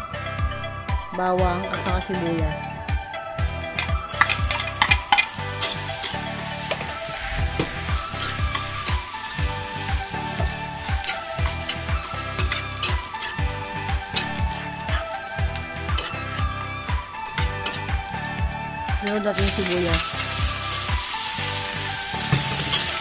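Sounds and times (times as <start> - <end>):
spatula scraping a wok: 4.1 - 17.9, 19.4 - 23.0
garlic sizzling in hot oil: 4.1 - 23.0.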